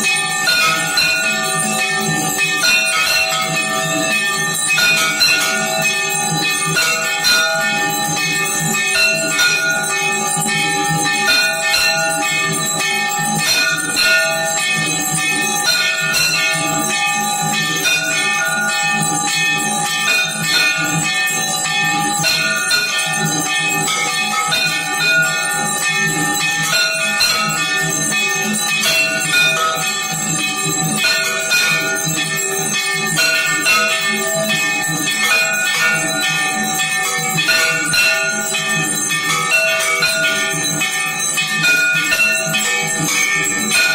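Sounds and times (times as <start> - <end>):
temple bells ringing: 0.0 - 43.9.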